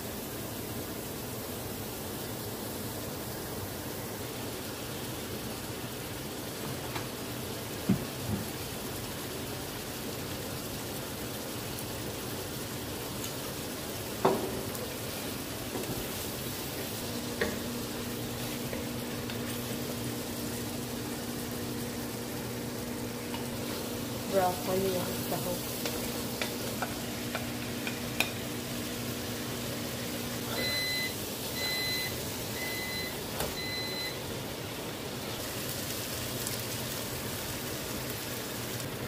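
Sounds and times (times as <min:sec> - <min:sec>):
meat sizzling in a pan: 0:00.0 - 0:39.0
wooden spatula knocking on pan: 0:07.8 - 0:08.5, 0:14.2 - 0:14.7.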